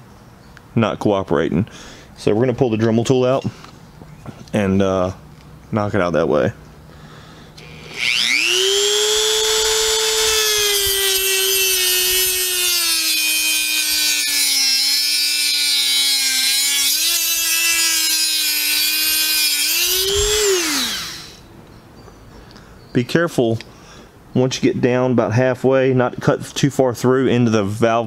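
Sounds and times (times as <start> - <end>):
rotary tool cutting metal: 7.6 - 21.4.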